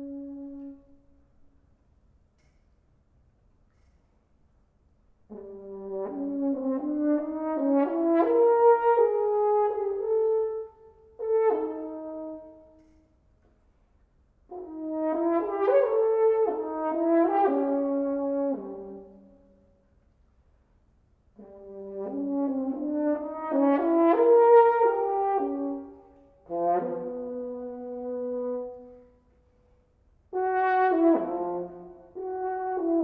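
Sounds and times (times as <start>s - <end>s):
french horn playing: 0.0s - 1.5s, 5.3s - 13.0s, 14.5s - 19.6s, 21.4s - 33.0s.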